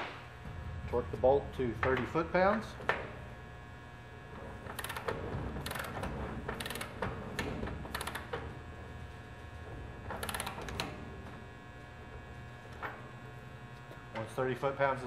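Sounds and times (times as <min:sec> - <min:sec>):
torque wrench ratchet clicking: 0:04.7 - 0:07.0, 0:07.9 - 0:08.3, 0:10.2 - 0:10.6.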